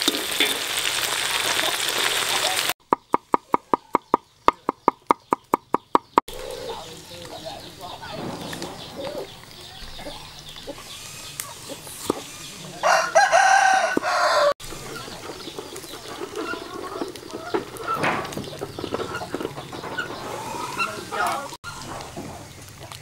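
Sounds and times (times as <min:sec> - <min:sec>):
rooster crowing: 0:12.7 - 0:14.6.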